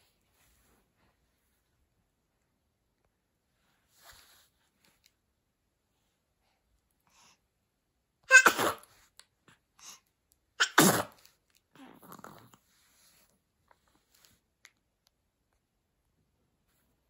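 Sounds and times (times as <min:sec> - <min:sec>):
baby sneezing: 0:08.3 - 0:08.9, 0:10.6 - 0:11.2.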